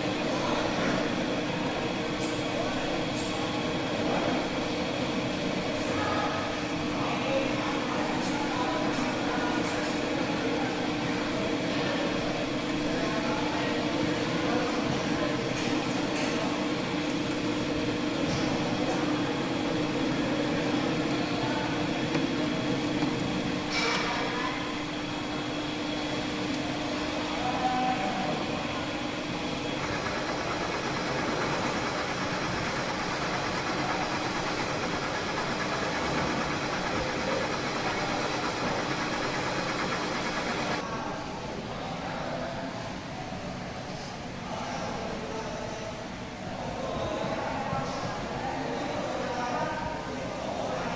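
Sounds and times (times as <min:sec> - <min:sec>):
metal lathe running: 0:28.8 - 0:40.8.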